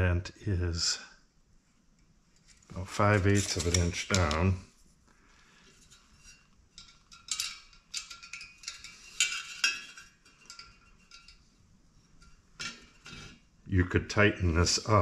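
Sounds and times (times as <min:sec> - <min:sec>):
metallic clinks and taps: 0:05.9 - 0:11.5.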